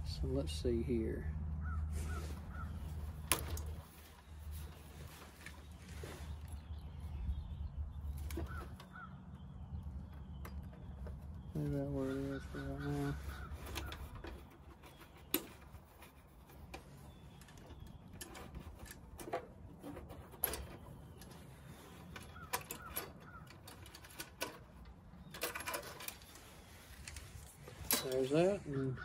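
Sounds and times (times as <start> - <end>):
hand tools clicking and knocking: 12.1 - 26.4, 27.0 - 28.6.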